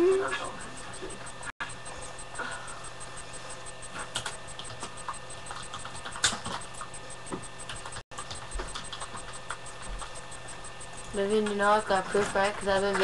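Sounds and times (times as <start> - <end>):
typing on computer keyboard: 4.0 - 6.9, 7.6 - 10.2.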